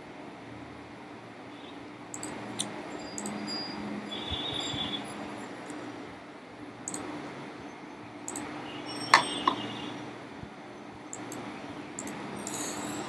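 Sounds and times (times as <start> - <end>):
ringing clink: 2.2 - 3.9, 8.3 - 9.7, 12.0 - 13.0.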